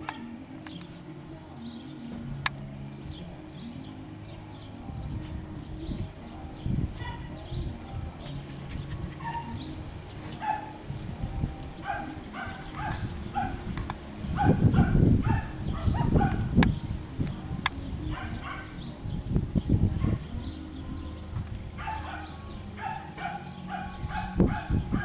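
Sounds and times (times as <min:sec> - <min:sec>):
puppies yipping and barking: 0:00.0 - 0:19.1, 0:19.9 - 0:25.0
low rumbling noise: 0:00.0 - 0:25.0.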